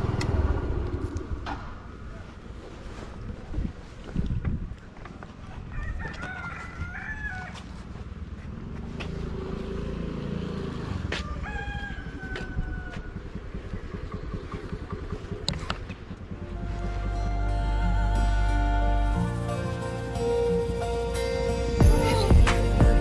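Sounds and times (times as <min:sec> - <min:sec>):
rooster crowing: 0:05.7 - 0:07.8, 0:11.1 - 0:13.4.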